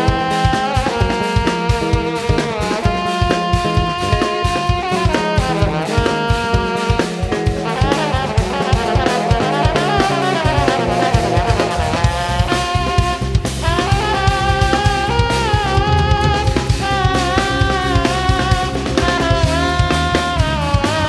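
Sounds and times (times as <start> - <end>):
drum kit: 0.0 - 21.0
electric bass groove: 0.0 - 21.0
trombone solo: 0.0 - 21.0.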